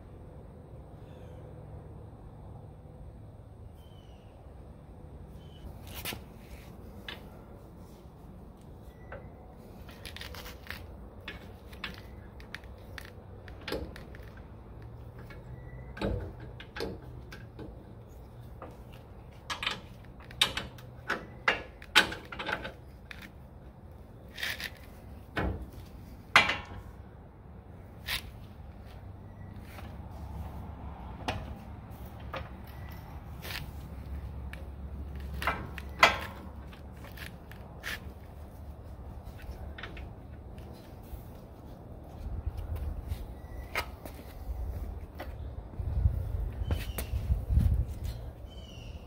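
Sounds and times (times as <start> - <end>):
metal clicks and knocks: 18.6 - 23.3, 34.5 - 37.7.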